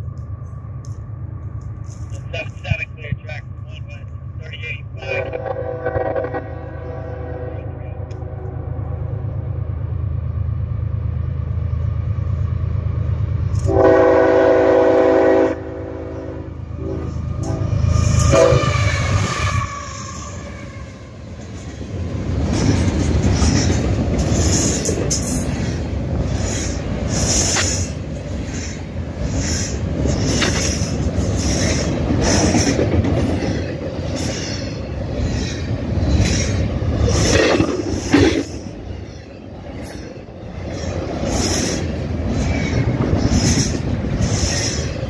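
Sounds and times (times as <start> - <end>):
locomotive engine rumble: 0.0 - 45.0
train horn blast: 5.0 - 8.8, 13.6 - 21.0
freight cars clicking wheels: 20.0 - 45.0.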